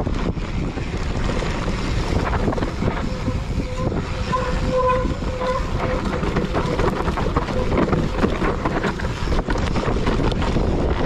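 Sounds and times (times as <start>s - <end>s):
bike knocks and rattles: 0.0s - 11.0s
tyres on dirt: 0.0s - 11.0s
wind buffeting microphone: 0.0s - 11.0s.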